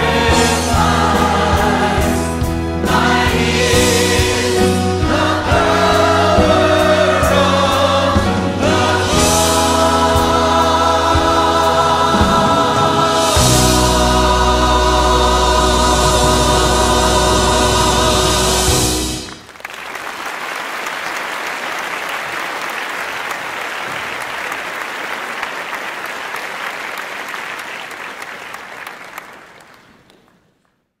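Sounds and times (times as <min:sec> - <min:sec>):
choir and orchestra chord: 0:00.0 - 0:19.5
audience applauding: 0:19.2 - 0:30.7.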